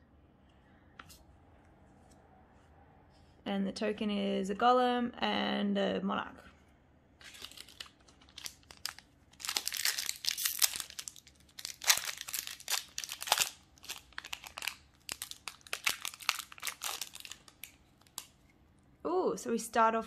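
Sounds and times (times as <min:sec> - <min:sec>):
foil wrapper crinkling and tearing: 0:07.2 - 0:18.4.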